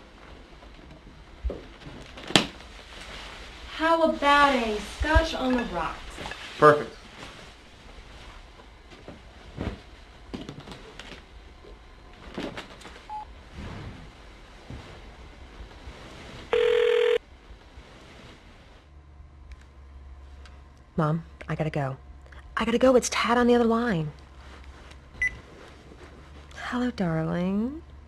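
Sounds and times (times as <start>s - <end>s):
low steady hum: 0.0s - 28.0s
handling knocks and rustles: 5.0s - 16.5s
electronic telephone beep: 16.6s - 17.2s.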